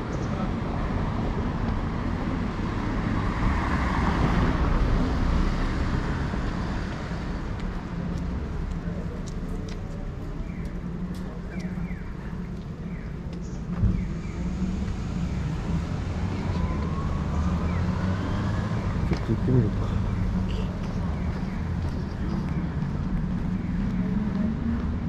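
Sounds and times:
low traffic rumble: 0:00.0 - 0:25.0
car passing: 0:14.0 - 0:25.0.

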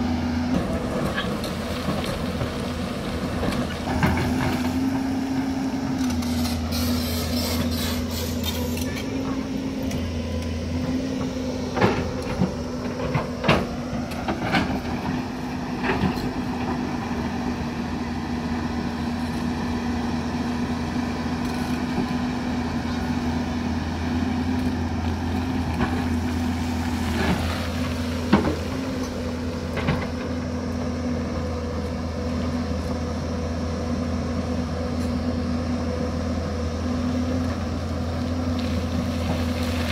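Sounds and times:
excavator engine running: 0:00.0 - 0:39.9
bucket scraping rock and soil: 0:26.1 - 0:29.3, 0:38.6 - 0:39.9.

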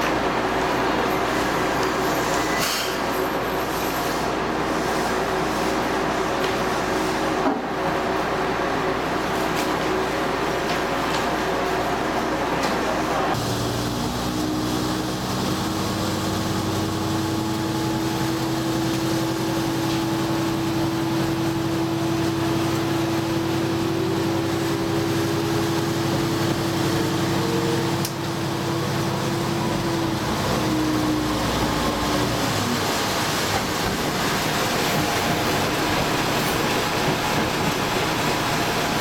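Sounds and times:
railcar engine hum: 0:00.0 - 0:39.0.

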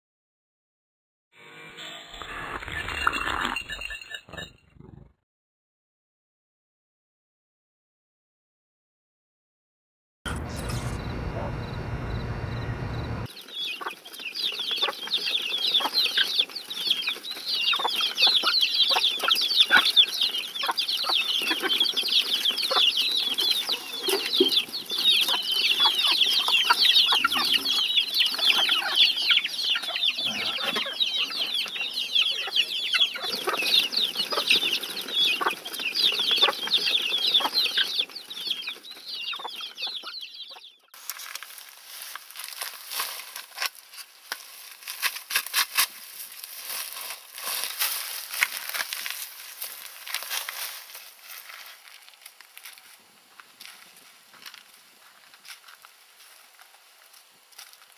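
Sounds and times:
chicks peeping: 0:10.3 - 0:40.9.

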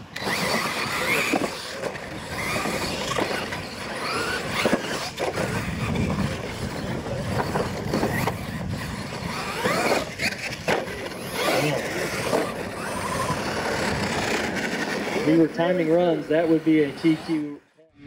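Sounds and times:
electric motors whining: 0:00.0 - 0:17.8
toy trucks landing with knocks: 0:00.1 - 0:06.6, 0:09.2 - 0:15.1
tyres scrabbling on dirt: 0:00.1 - 0:17.5.

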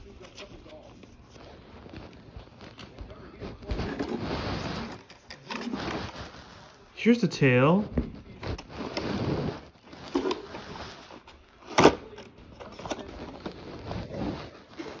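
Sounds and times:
plastic toy parts rustling: 0:09.7 - 0:15.0.

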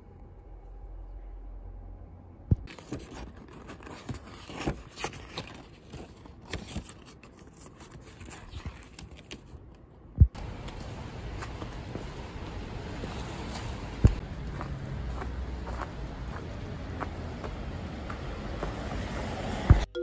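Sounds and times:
paper pages rustling: 0:02.6 - 0:09.9.

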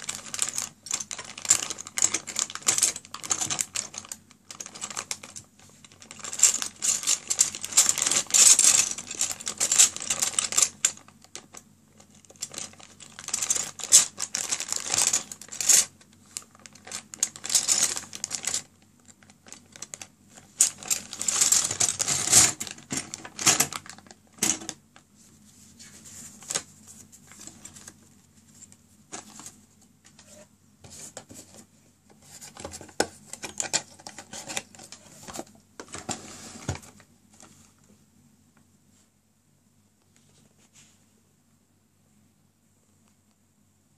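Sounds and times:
plastic pieces rattling in bag: 0:00.0 - 0:24.8
plastic bag crinkling: 0:00.0 - 0:24.9.

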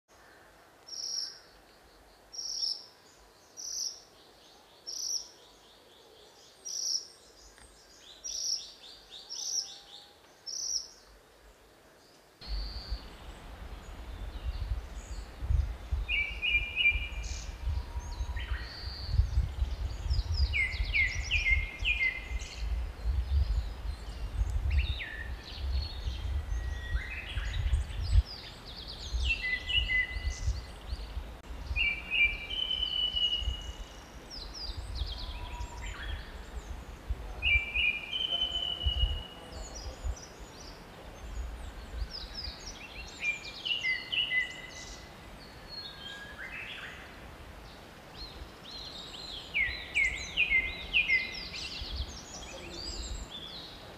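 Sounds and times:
birds calling with varied trills: 0:12.1 - 0:53.8
wind rumbling on microphone: 0:12.4 - 0:53.9.

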